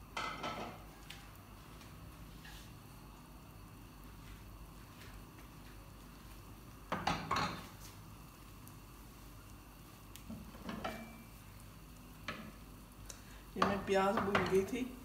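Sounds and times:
ceramic bowl clattering on stovetop: 6.9s - 7.7s, 10.6s - 11.2s.

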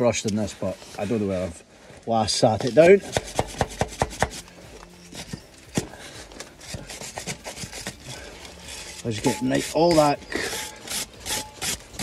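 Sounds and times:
wire brush rasping on metal: 2.8s - 12.0s.

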